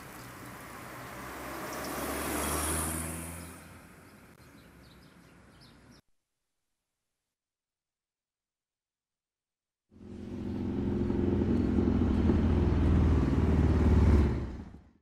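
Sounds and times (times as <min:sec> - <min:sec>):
vehicle engine passing: 0:00.4 - 0:04.0, 0:09.9 - 0:15.0.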